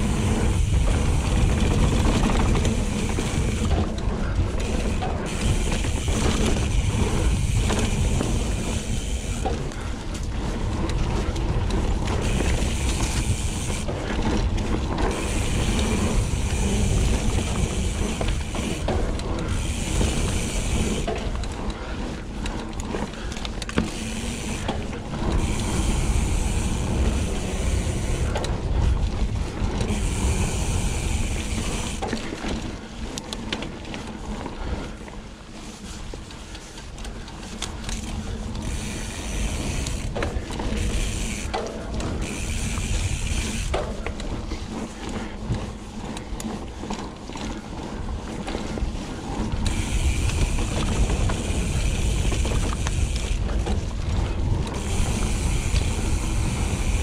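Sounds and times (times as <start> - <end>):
bike freewheel buzzing: 0.0 - 34.7, 37.4 - 57.0
low rumble of bike riding: 0.0 - 57.0.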